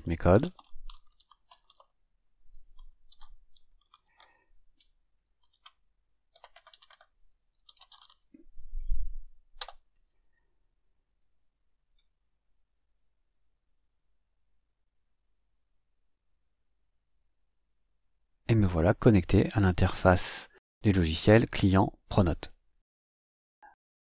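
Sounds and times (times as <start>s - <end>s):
computer keyboard typing: 0.4s - 2.0s, 2.6s - 8.4s, 9.6s - 9.8s.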